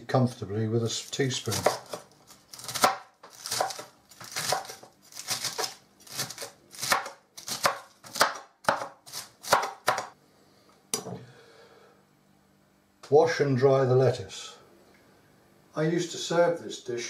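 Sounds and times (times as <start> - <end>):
knife chopping lettuce on board: 1.4 - 10.1.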